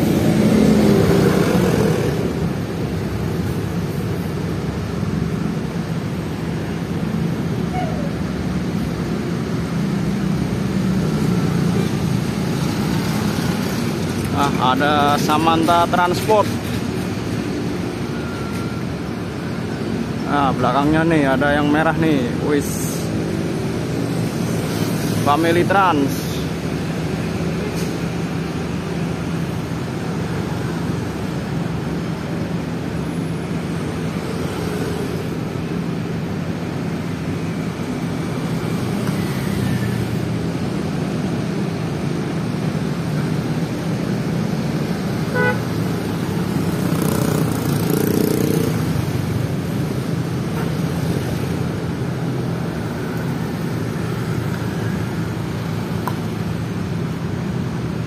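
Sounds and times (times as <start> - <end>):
short horn toot: 45.3 - 45.6.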